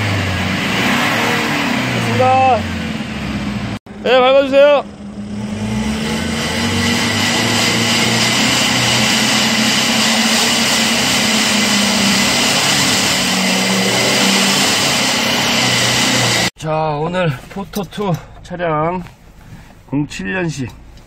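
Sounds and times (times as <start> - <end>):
diesel engine revving exhaust rush: 0.0 - 16.5.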